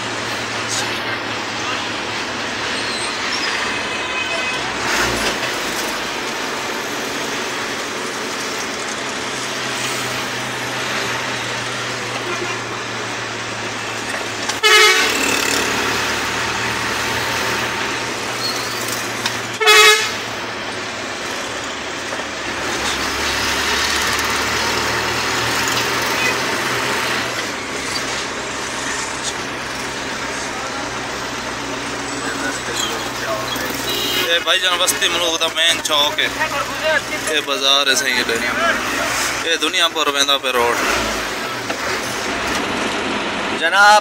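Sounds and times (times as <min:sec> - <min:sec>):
diesel truck engine running: 0:00.0 - 0:43.7
road noise: 0:00.0 - 0:44.0
truck horn blasts: 0:12.2 - 0:12.8, 0:14.5 - 0:15.9, 0:19.5 - 0:20.4, 0:33.7 - 0:34.4.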